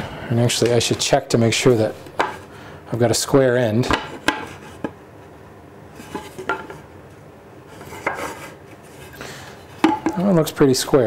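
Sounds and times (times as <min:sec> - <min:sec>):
tool tapping and rubbing wood: 0:03.9 - 0:05.0, 0:07.8 - 0:08.5.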